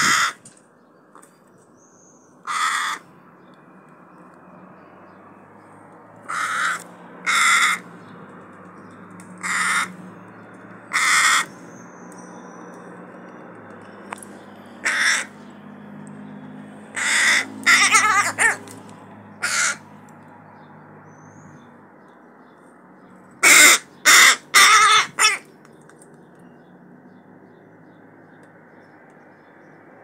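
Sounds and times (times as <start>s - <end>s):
crow cawing: 0.0s - 0.4s, 2.4s - 3.1s, 6.2s - 7.9s, 9.4s - 10.0s, 10.9s - 11.6s, 14.7s - 15.5s, 16.9s - 18.6s, 19.4s - 19.9s, 23.4s - 25.5s.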